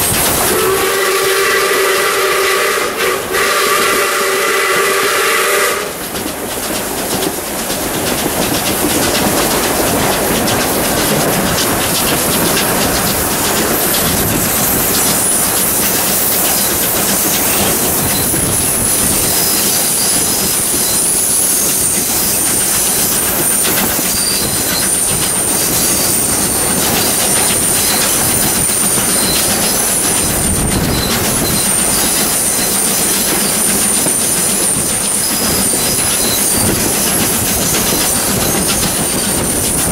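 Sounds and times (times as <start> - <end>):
train wheels rumbling on rails: 0.0 - 39.9
steam whistle blast: 0.4 - 6.0
wheel flanges squealing: 8.6 - 39.9.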